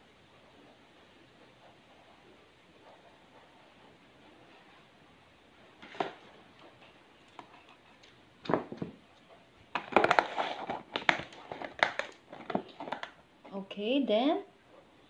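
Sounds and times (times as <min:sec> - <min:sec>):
plastic clicking and crinkling: 0:09.7 - 0:13.2.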